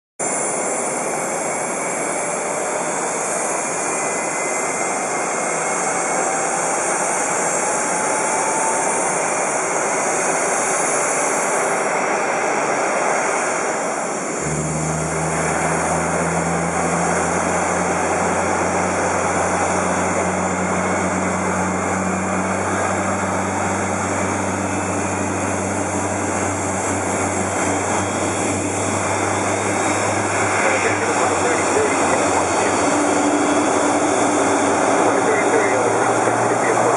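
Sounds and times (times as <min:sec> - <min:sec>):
jet engines running: 0:00.2 - 0:36.9
steady low hum: 0:14.2 - 0:36.9.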